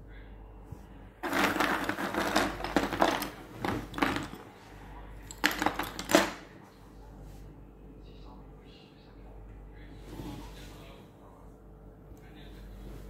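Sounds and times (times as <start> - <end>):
wood chips clattering and rustling: 1.2 - 4.4.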